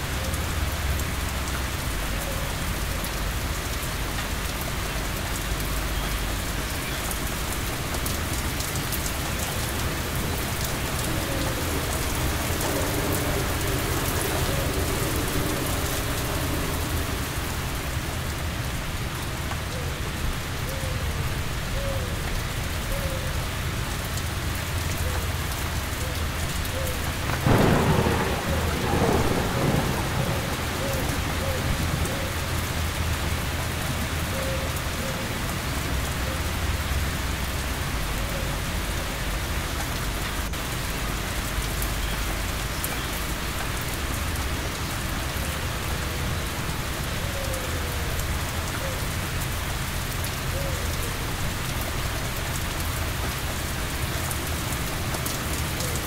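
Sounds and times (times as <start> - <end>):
heavy rain falling: 0.0 - 56.0
thunderclap and rumble: 7.2 - 19.6, 27.0 - 34.3.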